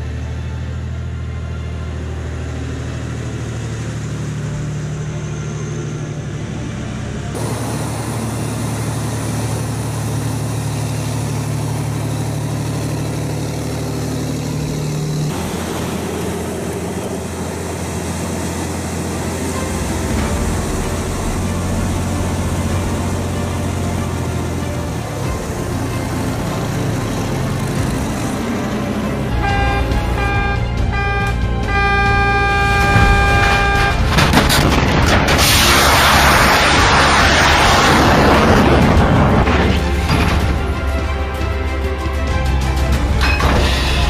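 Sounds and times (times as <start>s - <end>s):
truck diesel engine humming: 0.0s - 44.0s.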